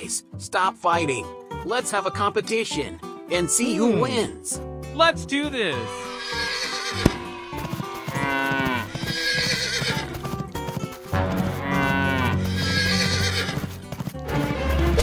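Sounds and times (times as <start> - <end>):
background music: 0.0 - 15.0
horse whinnying: 6.0 - 10.3, 11.5 - 13.7
cow mooing: 8.1 - 10.0, 11.3 - 13.5.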